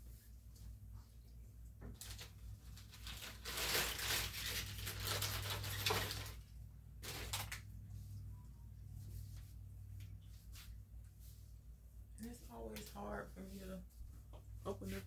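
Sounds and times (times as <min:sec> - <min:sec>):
rustling crinkling handling noise: 0:01.8 - 0:08.2.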